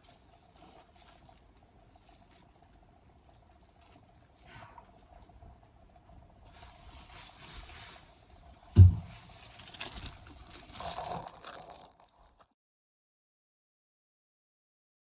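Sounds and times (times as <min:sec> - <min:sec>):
rustling and handling noises: 0:00.0 - 0:05.4, 0:06.4 - 0:12.5
faint steady hum: 0:00.0 - 0:11.4
dull thump: 0:08.8 - 0:09.3.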